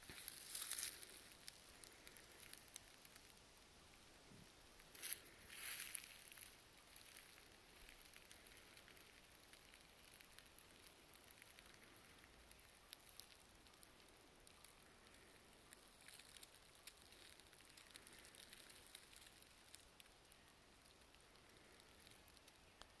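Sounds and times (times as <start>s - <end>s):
footsteps on dry leaves: 0.0s - 2.7s, 4.9s - 7.5s.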